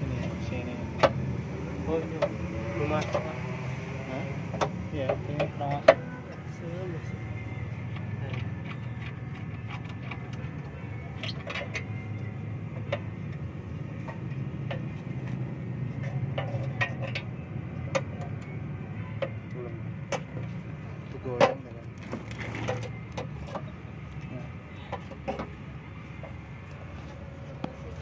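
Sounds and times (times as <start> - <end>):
tools clicking and knocking: 4.5 - 6.5, 7.7 - 18.6, 24.8 - 26.8.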